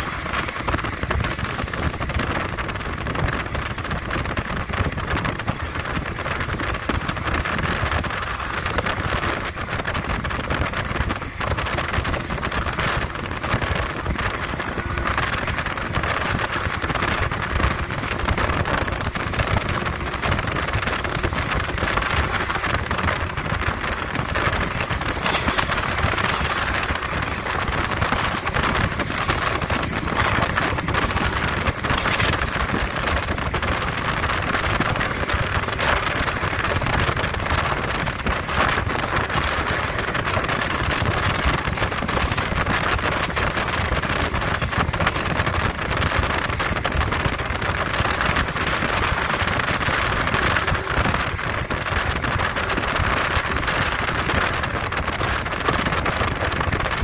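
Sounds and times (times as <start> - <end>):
train running rumble: 0.0 - 57.0
wind rushing through train window: 0.0 - 57.0.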